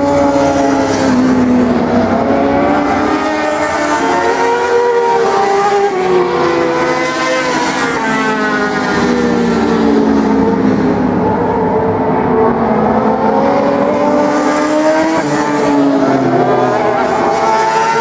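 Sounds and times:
racing motorcycle engines revving: 0.0s - 18.0s.

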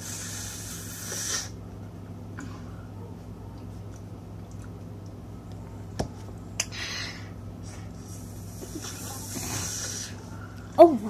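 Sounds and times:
breathy hiss: 0.0s - 1.6s, 6.6s - 10.8s
steady low hum: 0.0s - 11.0s.

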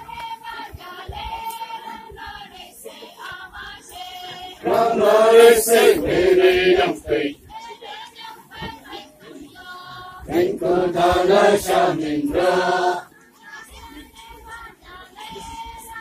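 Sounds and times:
group chanting a dance song: 0.0s - 14.0s
loud chorus: 3.8s - 7.4s, 10.2s - 13.1s.

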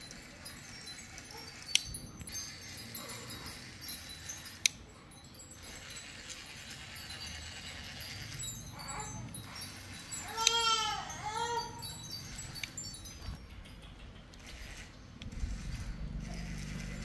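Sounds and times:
faint high tinkling: 0.0s - 14.2s.

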